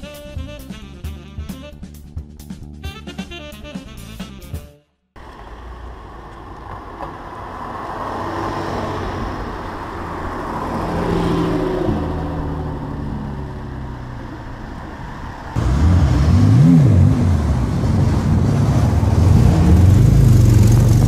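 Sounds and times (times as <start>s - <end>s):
car engine driving past: 5.2s - 21.0s
traffic noise: 5.2s - 21.0s.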